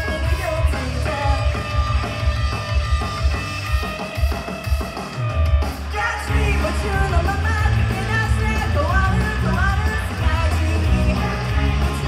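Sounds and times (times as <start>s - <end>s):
woman singing: 0.0s - 2.0s, 5.9s - 12.0s
rock band playing: 0.0s - 12.0s.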